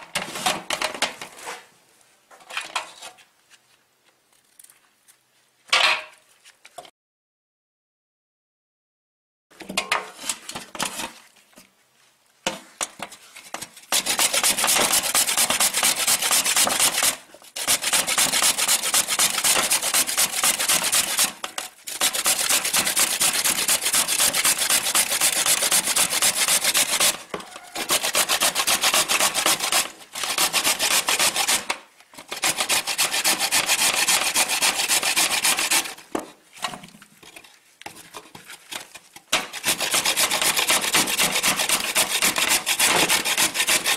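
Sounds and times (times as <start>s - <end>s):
carrots grated on metal grater: 13.9s - 36.0s, 38.7s - 43.9s.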